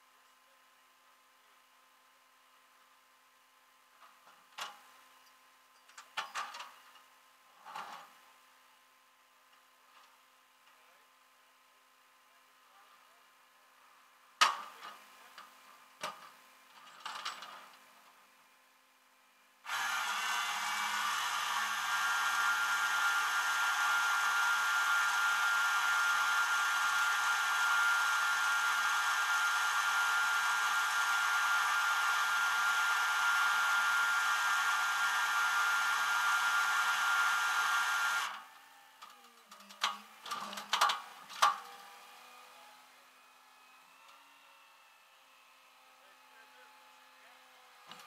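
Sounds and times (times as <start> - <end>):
tow truck hydraulics whining: 19.6 - 39.1.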